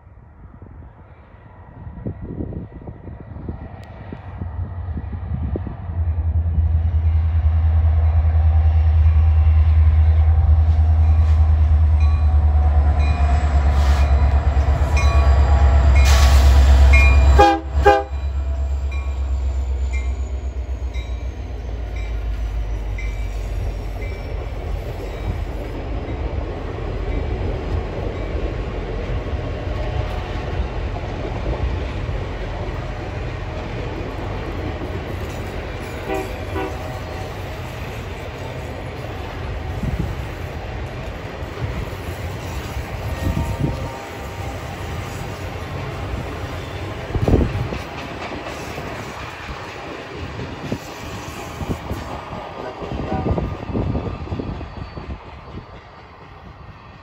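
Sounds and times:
diesel locomotive engine rumble: 0.0s - 57.0s
train cars rolling: 5.6s - 57.0s.

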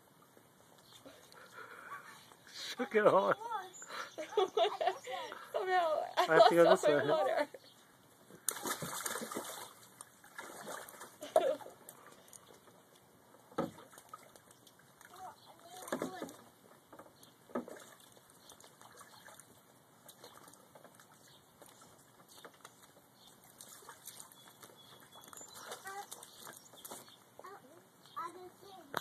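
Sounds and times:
water splashing in paddling pool: 8.3s - 12.4s, 13.6s - 16.8s, 17.5s - 27.2s.

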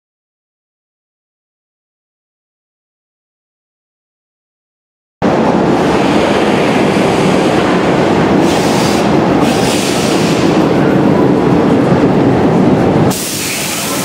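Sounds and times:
metro train running on steel wheels: 5.2s - 14.0s
hiss: 8.4s - 10.5s, 13.1s - 14.0s.

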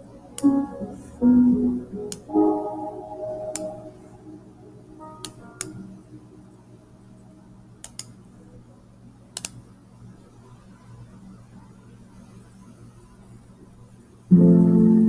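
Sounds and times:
low steady hum: 0.0s - 15.0s
guitar note: 0.4s - 5.9s, 14.3s - 15.0s
computer mouse clicks: 7.8s - 8.1s, 9.4s - 9.6s.

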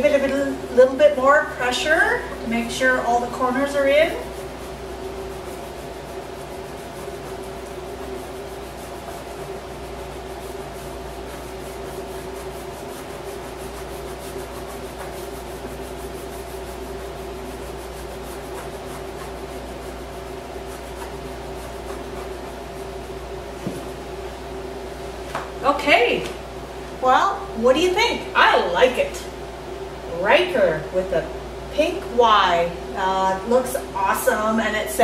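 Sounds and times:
fingers rubbing on tape: 3.4s - 23.2s.

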